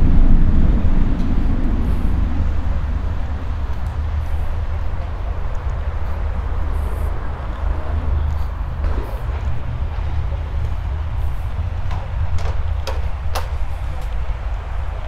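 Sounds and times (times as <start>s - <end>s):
low hum of traffic: 0.0s - 15.0s
low vehicle rumble: 0.0s - 15.0s.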